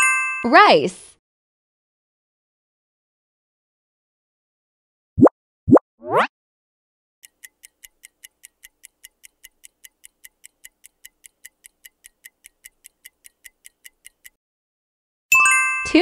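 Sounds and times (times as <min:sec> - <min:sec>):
countdown timer ticking: 0:07.2 - 0:14.4.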